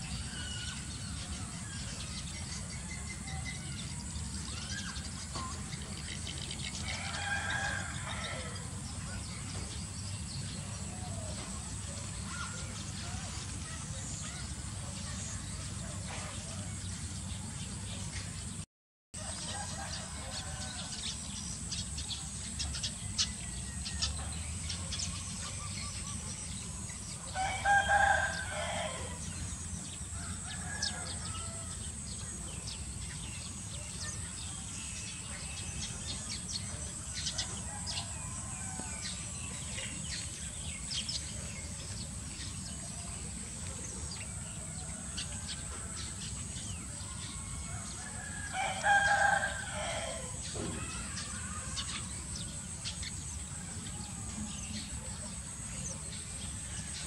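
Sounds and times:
rooster crowing: 6.8s - 8.7s, 19.2s - 21.1s, 27.3s - 29.3s, 30.2s - 31.9s, 37.2s - 39.3s, 46.9s - 52.5s.

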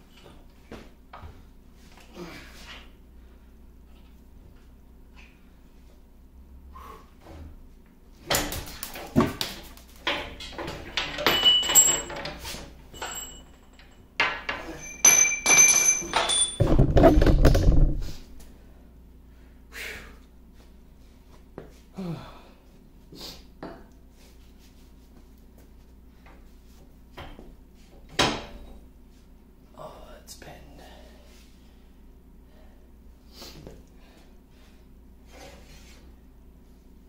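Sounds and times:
metal clanks and knocks: 10.0s - 18.1s
small metal parts clinking: 10.4s - 16.8s.

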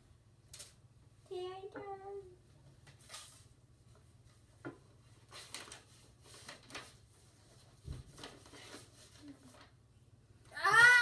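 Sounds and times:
cards and envelopes rustling: 4.3s - 9.8s.

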